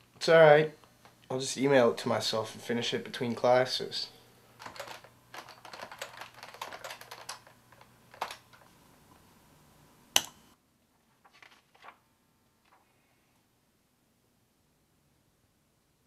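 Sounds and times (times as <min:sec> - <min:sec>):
keyboard typing: 0:04.6 - 0:08.7.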